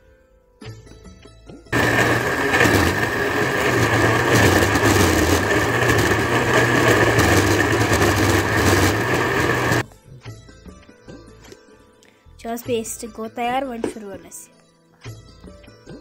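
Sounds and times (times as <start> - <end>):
mixer grinder whining: 1.8 - 9.8.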